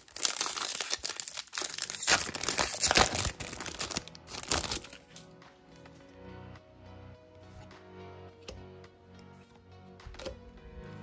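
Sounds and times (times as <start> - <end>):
wrapper tearing and crinkling: 0.0 - 5.3.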